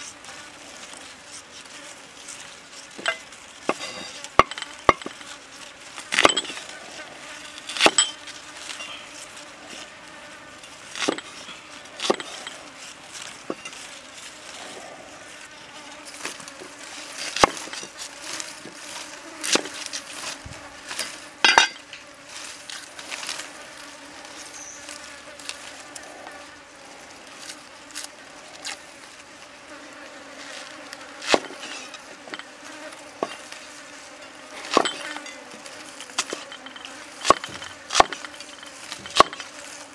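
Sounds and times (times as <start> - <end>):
cleaver chopping on wooden block: 12.0 - 12.4, 37.2 - 38.3, 38.9 - 39.4.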